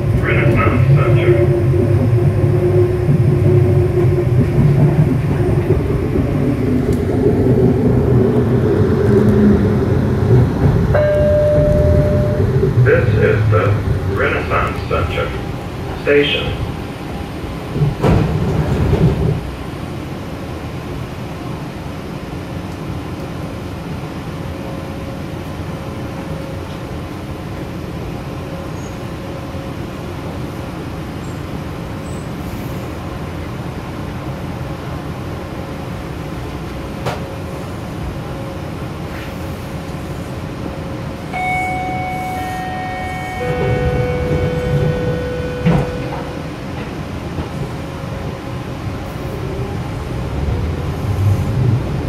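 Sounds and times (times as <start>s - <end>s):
train equipment low hum: 0.0s - 52.0s
electronic chime: 11.0s - 12.5s, 41.4s - 46.4s.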